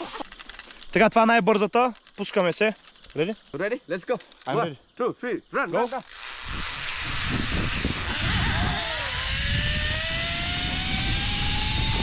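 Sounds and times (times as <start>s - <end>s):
zipline pulleys whining on cable: 5.8s - 12.0s
wind rushing on microphone: 6.4s - 12.0s.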